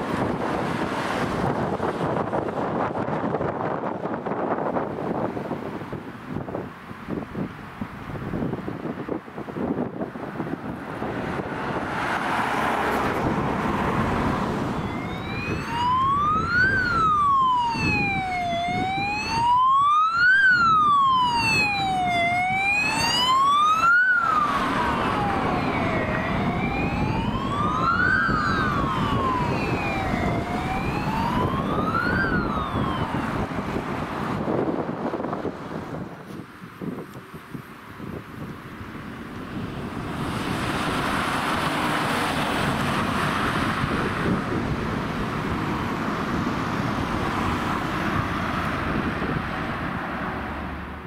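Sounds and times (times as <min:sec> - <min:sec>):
road and engine noise: 0:00.0 - 0:51.0
ambulance siren wailing: 0:12.7 - 0:35.2.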